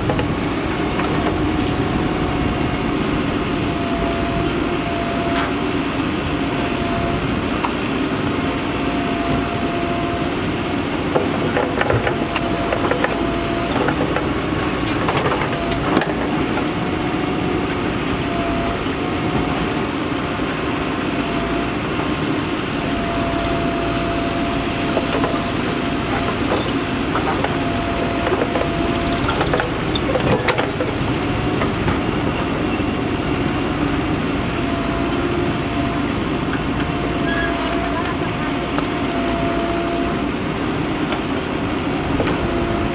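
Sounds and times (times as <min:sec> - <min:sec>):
diesel engine under load: 0:00.0 - 0:42.9.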